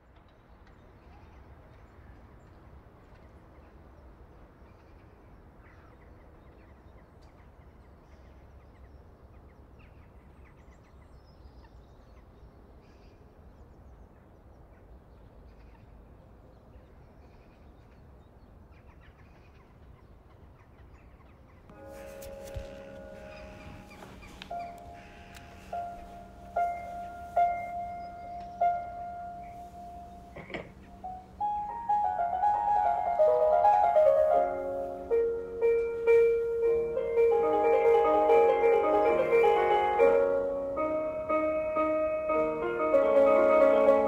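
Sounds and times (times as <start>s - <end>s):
bird chirps: 21.7s - 33.2s.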